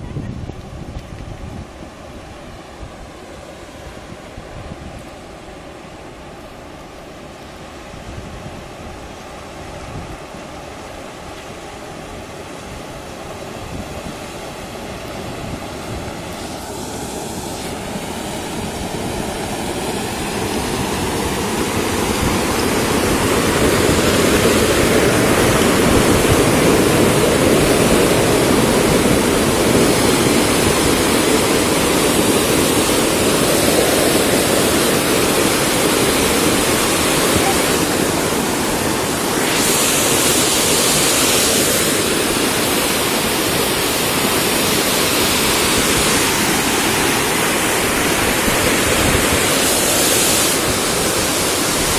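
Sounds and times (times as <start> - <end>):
muddy water rushing over stones: 14.4 - 51.9.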